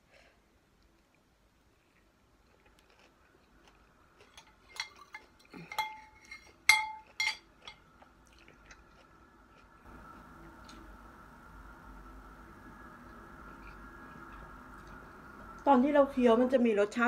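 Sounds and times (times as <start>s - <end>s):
spoon clinking on ceramic plate: 4.4s - 7.8s.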